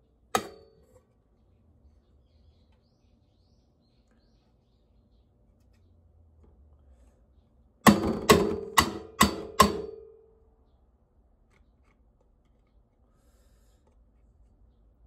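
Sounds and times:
sharp knocks: 7.8 - 10.1.

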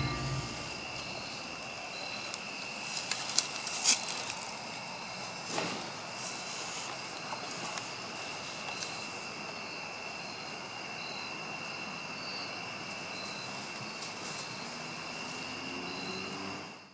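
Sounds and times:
steady rushing noise: 0.0 - 1.4
high-pitched whine: 0.0 - 2.1.

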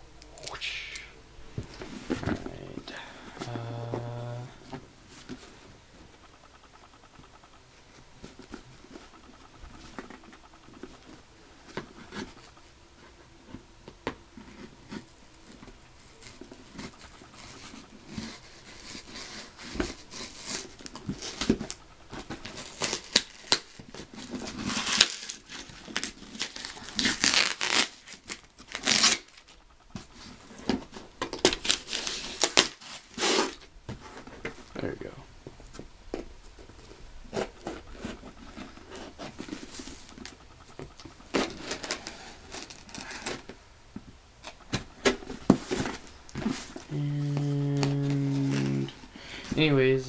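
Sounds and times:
paper packing crinkling: 14.4 - 34.4, 36.6 - 43.6
tape and cardboard ripping: 16.2 - 29.6, 30.7 - 33.7, 37.3 - 43.6.

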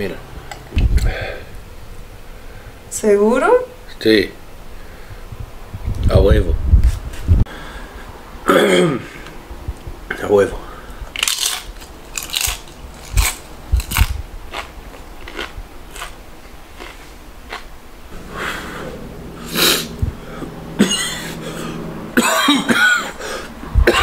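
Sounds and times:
man coughing: 8.5 - 9.2, 20.7 - 24.0.

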